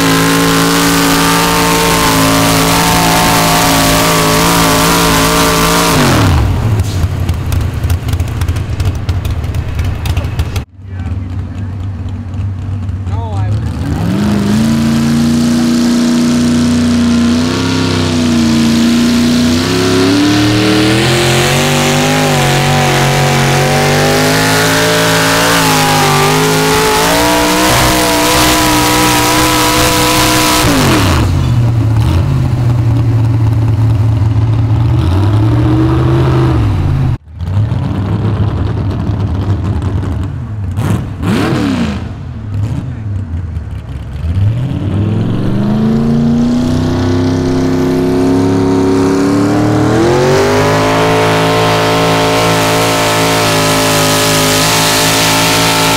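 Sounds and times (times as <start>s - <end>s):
tractor engine at full throttle: 0.0s - 55.9s
tractor engine idling: 6.5s - 13.6s.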